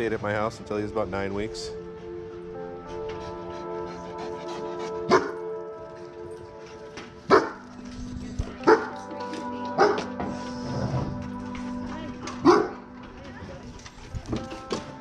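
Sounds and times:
background music: 0.0s - 15.0s
dogs barking: 3.0s - 7.8s, 8.5s - 9.1s, 9.7s - 10.2s, 12.2s - 13.0s.

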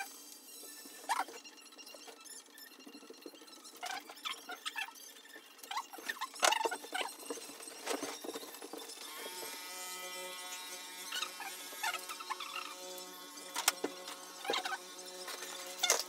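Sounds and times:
massage gun whine: 7.2s - 16.0s.

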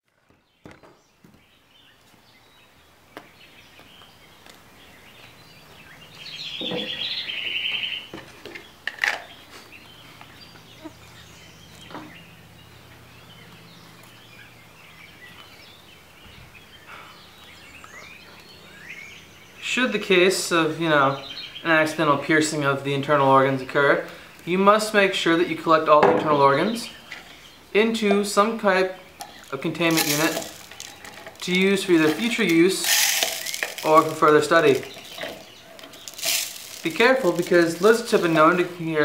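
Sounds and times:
birds chirping: 0.0s - 39.0s
bird trill: 5.0s - 8.1s.

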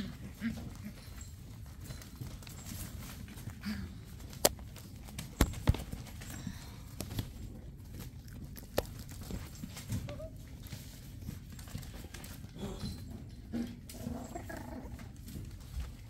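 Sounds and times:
puppies scuffling in wire playpen: 0.0s - 16.0s.

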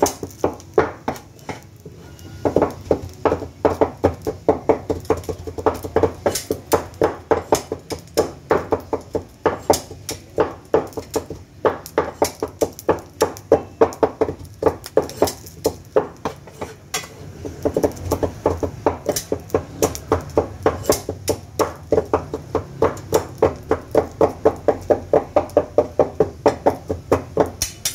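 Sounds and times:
metal spatulas clacking on griddle: 4.9s - 18.2s, 20.7s - 21.9s, 26.2s - 27.9s.

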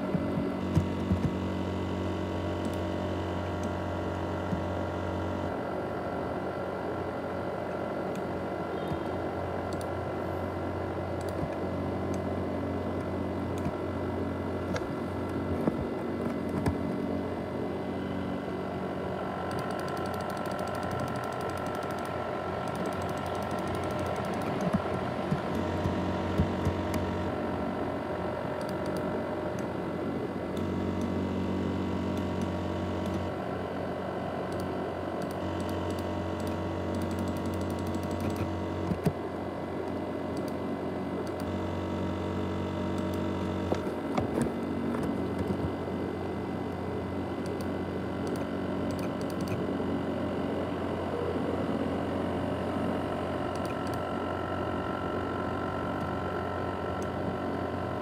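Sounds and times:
laptop fan whirring: 0.0s - 58.0s
low hum: 0.0s - 58.0s
sharp clicks: 47.4s - 49.6s.

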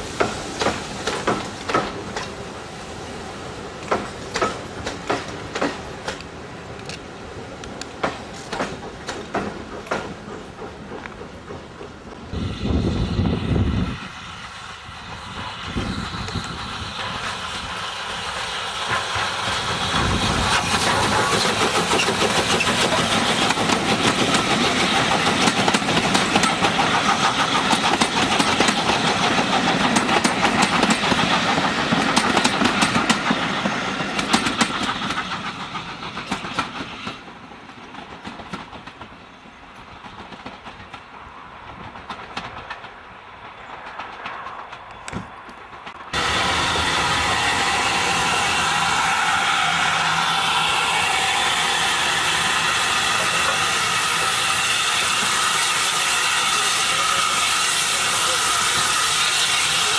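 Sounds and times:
steam train passing: 0.0s - 59.9s
wheels clicking over rail joints: 3.8s - 12.2s, 20.0s - 46.2s.

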